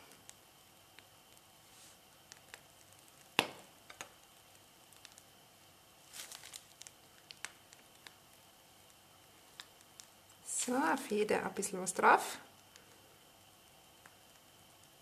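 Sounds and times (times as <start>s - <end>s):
plastic piping bag crinkling: 0.0s - 13.0s, 13.6s - 15.0s.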